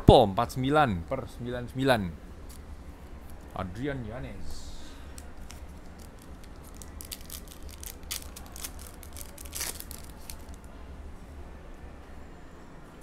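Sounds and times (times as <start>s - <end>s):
plastic foil pack crinkling: 5.1s - 10.7s
plastic foil tearing: 5.2s - 10.6s.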